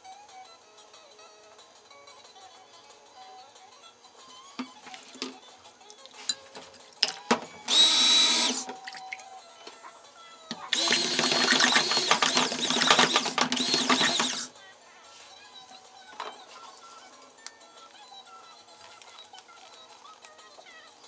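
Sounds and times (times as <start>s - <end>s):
stick blender whining: 7.6s - 8.8s, 10.5s - 14.5s.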